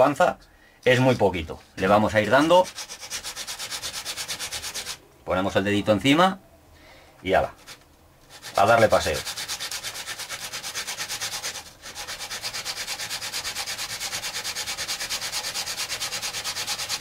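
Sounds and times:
carbon brush scraping on abrasive disc: 1.8s - 5.0s, 7.5s - 17.0s.

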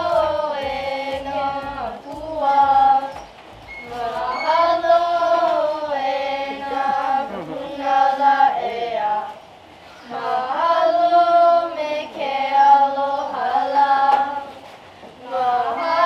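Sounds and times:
children singing together: 0.0s - 9.4s, 10.0s - 16.0s.

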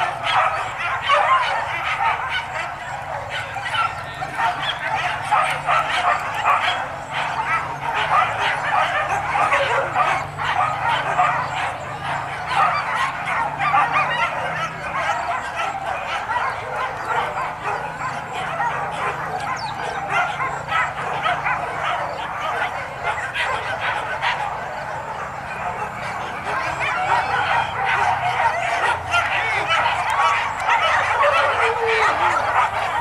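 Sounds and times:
many dogs barking and yelping: 0.0s - 33.0s.

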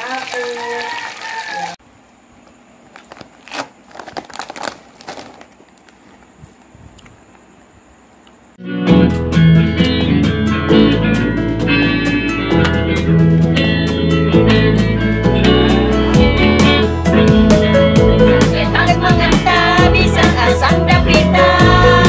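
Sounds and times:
handling rustles and clicks: 2.5s - 6.7s
loud guitar music: 8.6s - 22.0s.

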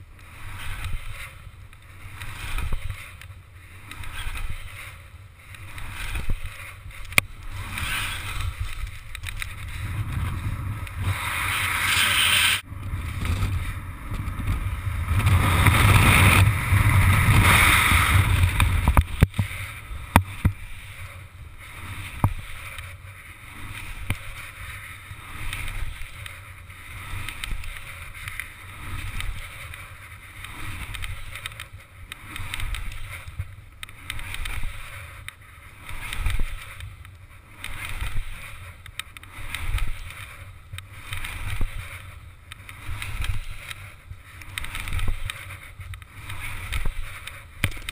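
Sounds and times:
sharp clicks: 0.2s - 9.8s, 27.0s - 47.9s
wind buffeting microphone: 5.6s - 11.5s, 12.6s - 31.7s.

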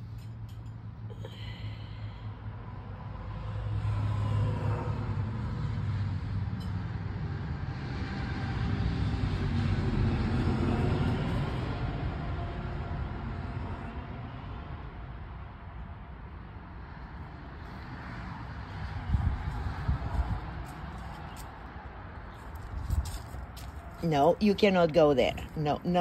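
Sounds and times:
road traffic engine rumble: 0.0s - 13.5s.

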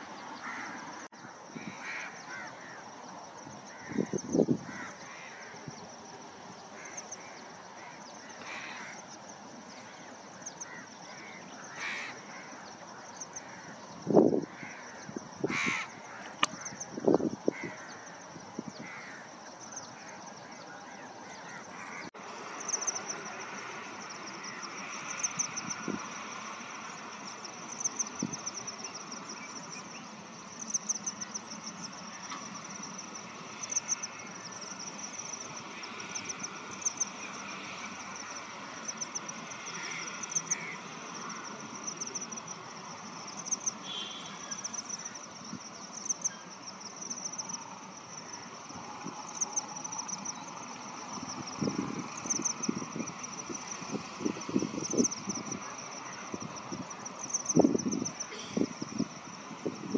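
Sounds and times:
faint animal calls: 14.5s - 16.9s.

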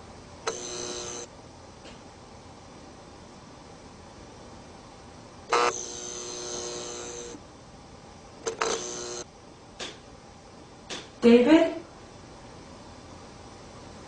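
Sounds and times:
loud buzzing horn tone: 0.5s - 1.3s
sharp click: 9.8s - 10.0s, 10.9s - 11.1s.

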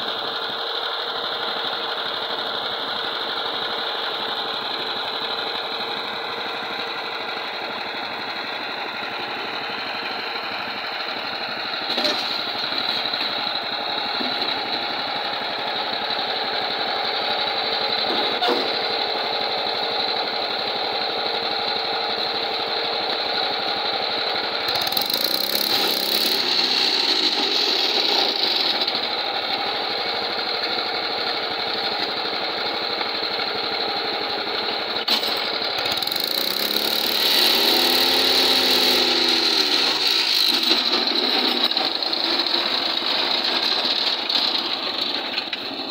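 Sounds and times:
small petrol engine running: 0.0s - 45.9s
machine clanks: 35.0s - 37.1s.

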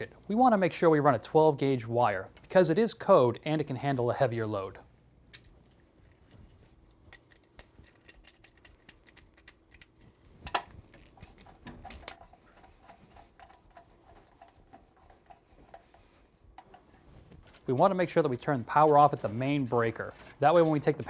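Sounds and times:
small clicks and taps: 7.1s - 12.2s.

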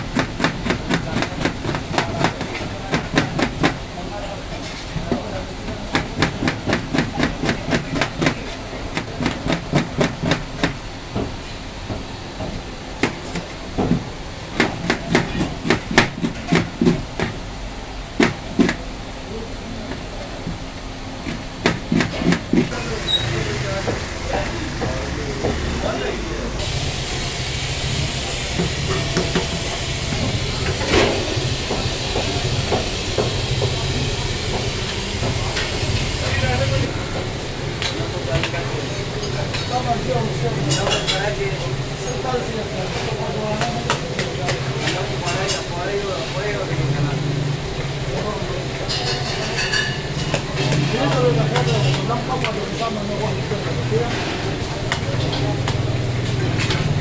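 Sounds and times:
rapid chopping on a block: 0.0s - 3.8s, 5.8s - 10.8s, 13.0s - 17.4s, 18.2s - 18.8s, 21.2s - 22.8s
kitchen hissing rumble: 0.0s - 57.0s.

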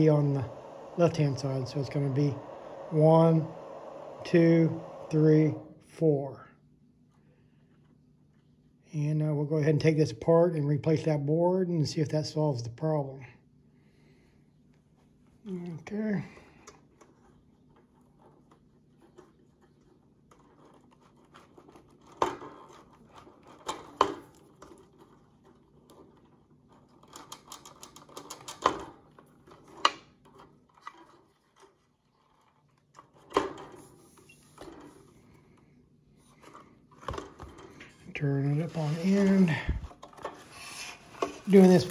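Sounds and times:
wires rustling: 16.5s - 41.9s.

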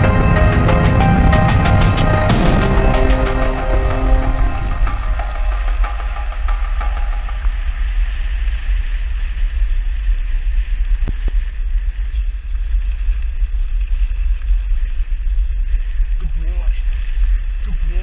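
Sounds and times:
wind noise on microphone: 0.0s - 18.0s
wheels rolling over gravel: 8.0s - 18.0s.

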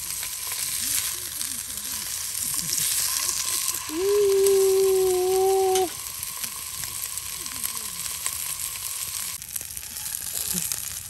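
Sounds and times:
tempura sizzling in hot oil: 0.0s - 11.0s
faint voices: 0.5s - 9.4s
steady pitched tone: 3.0s - 9.2s.

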